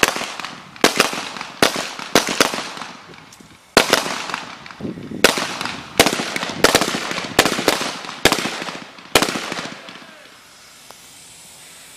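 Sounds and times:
gunshots with echo: 5.2s - 10.1s.

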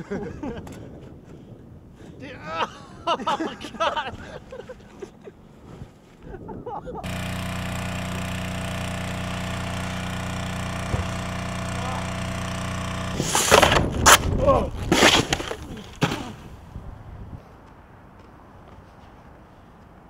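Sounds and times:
person shouting: 2.2s - 2.8s
machine hum: 7.0s - 14.0s
snowboard knocking and sliding: 10.7s - 12.0s, 13.2s - 16.6s.

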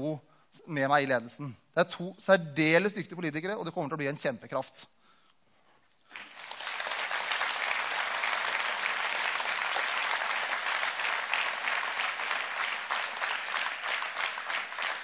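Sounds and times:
audience clapping: 6.0s - 15.0s.

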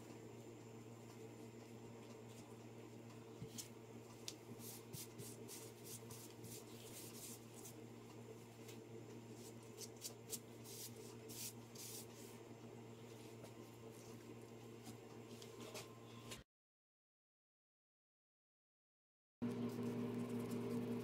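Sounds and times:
steady low hum: 0.0s - 16.4s.

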